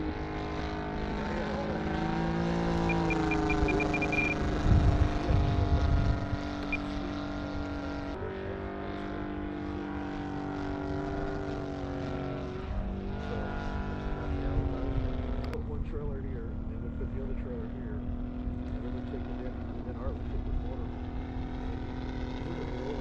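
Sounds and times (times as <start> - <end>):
model airplane engine in flight: 0.0 - 23.0.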